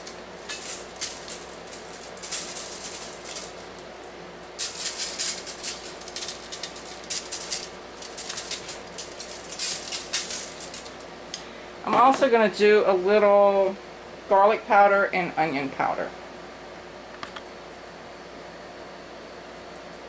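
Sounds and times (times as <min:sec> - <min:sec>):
spice shaker rattling: 0:00.0 - 0:11.1.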